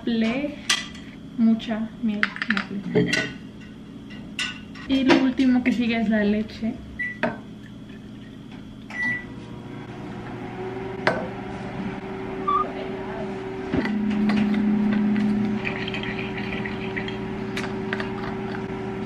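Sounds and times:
steady hum: 0.0s - 19.0s
milk pouring into bottle: 15.1s - 18.6s.

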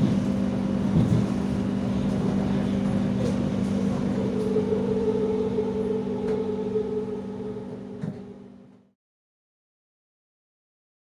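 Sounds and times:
electric train low hum: 0.0s - 9.0s
high-pitched train whine: 0.0s - 9.0s.

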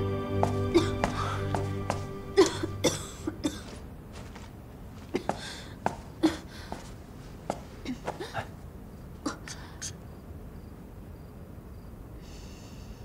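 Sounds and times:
woman coughing: 0.7s - 1.3s, 2.4s - 3.8s, 5.1s - 5.6s, 6.2s - 6.5s, 7.9s - 8.5s.

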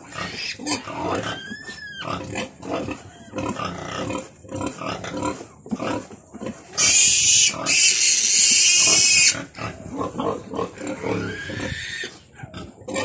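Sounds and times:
piglet squealing: 6.8s - 9.4s, 11.1s - 12.1s.

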